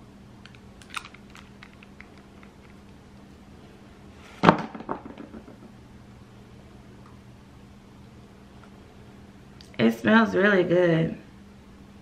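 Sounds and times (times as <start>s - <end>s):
faint steady hum: 0.0s - 12.0s
clicks handling small package: 0.4s - 2.9s.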